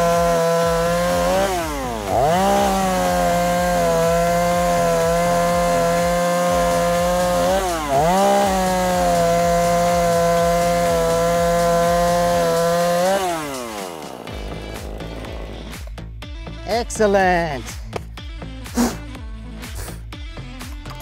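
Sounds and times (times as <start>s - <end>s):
chainsaw cutting wood: 0.0s - 16.0s.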